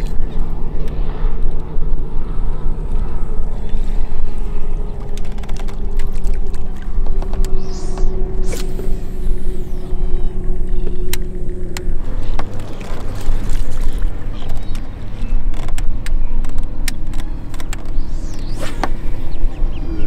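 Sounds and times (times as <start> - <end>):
boat motor rumbling: 0.0 - 20.0
sharp clicks: 15.5 - 19.0.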